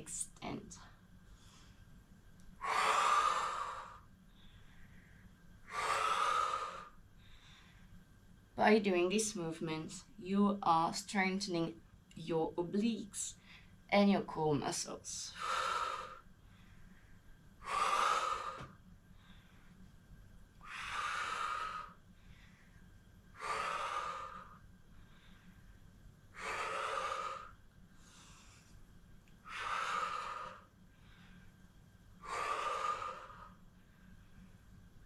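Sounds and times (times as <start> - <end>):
woman breathing hard: 2.6 - 8.0, 15.3 - 19.9, 20.5 - 28.8, 29.4 - 34.6.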